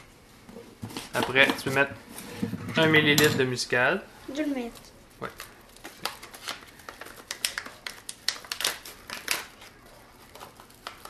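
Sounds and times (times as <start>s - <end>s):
plastic bag crinkling: 4.6s - 11.0s.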